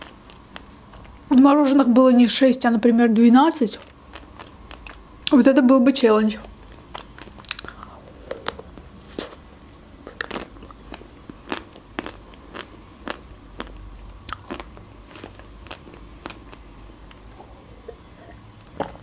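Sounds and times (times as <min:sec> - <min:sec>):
wet mouth sounds: 0:06.6 - 0:09.4.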